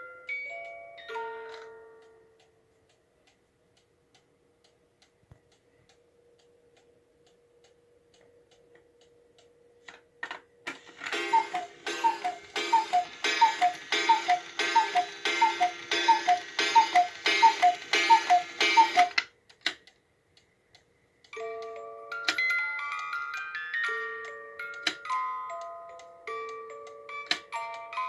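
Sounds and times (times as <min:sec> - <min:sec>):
clock mechanism clicks: 0:10.6 - 0:23.1, 0:23.9 - 0:27.9
two-note cuckoo calls: 0:10.9 - 0:19.2.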